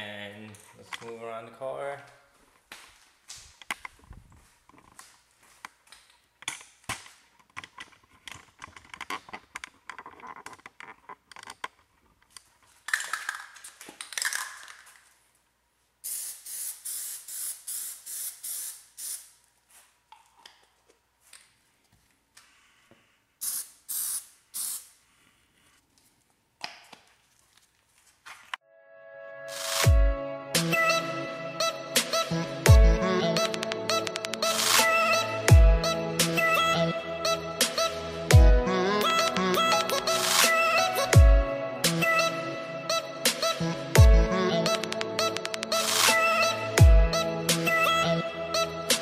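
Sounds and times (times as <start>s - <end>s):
aerosol can spraying: 16.0s - 19.4s, 23.4s - 25.0s
clicks and taps: 33.4s - 34.4s, 44.8s - 45.7s.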